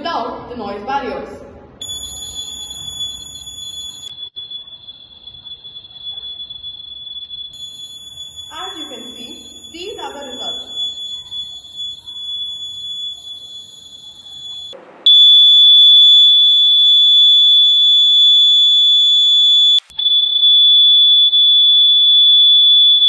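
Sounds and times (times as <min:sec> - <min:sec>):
high-pitched electronic buzzer tone: 0:01.8 - 0:21.0.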